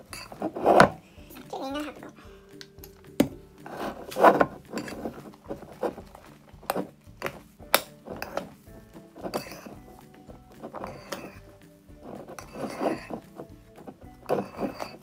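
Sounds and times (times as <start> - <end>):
spoon stirring wet slime: 0.0 - 15.0
spoon clinking against bowl: 9.3 - 9.8.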